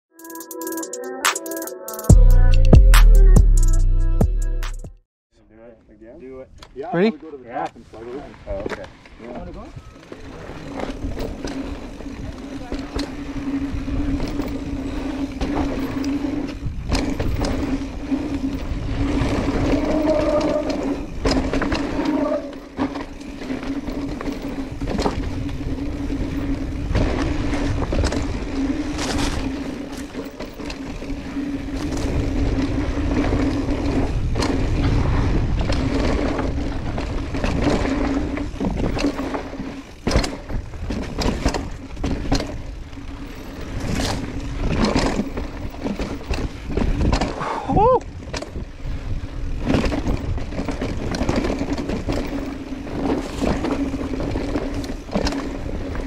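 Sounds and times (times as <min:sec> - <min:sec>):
bike knocking and rattling: 0:06.5 - 0:56.0
bike tyres rumbling over dirt: 0:06.9 - 0:56.0
wind noise on microphone: 0:10.8 - 0:22.5, 0:24.5 - 0:29.9, 0:30.9 - 0:56.0.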